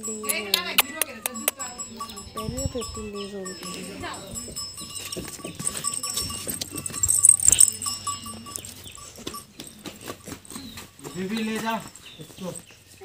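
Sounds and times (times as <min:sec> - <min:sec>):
goats: 0:02.9 - 0:13.0
knocks and shuffling: 0:03.6 - 0:12.9.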